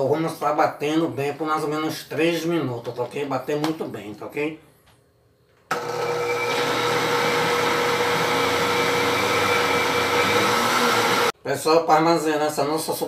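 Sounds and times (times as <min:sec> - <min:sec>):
blender motor whine: 0:05.7 - 0:11.4.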